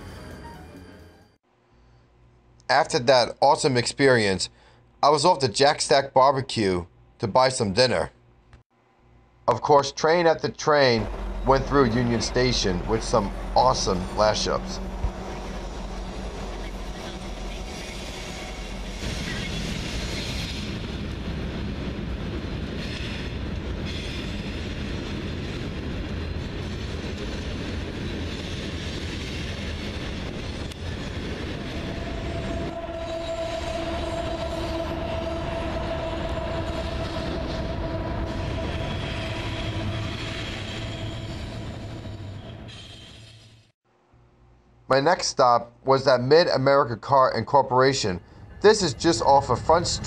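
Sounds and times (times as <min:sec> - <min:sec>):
freight train rumbling past: 0:00.0 - 0:01.3, 0:10.8 - 0:43.4, 0:48.2 - 0:50.0
steady high tone: 0:10.7 - 0:17.8, 0:31.4 - 0:42.2.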